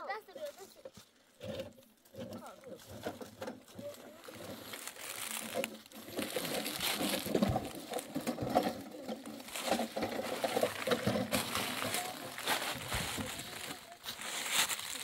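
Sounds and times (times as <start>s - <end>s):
small rocks clicking: 3.6s - 15.0s
footsteps on gravel: 3.7s - 15.0s.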